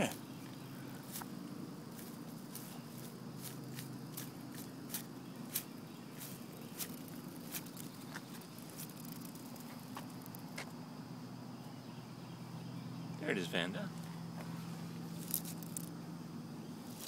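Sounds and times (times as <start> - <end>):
footsteps in grass: 1.0 - 10.7.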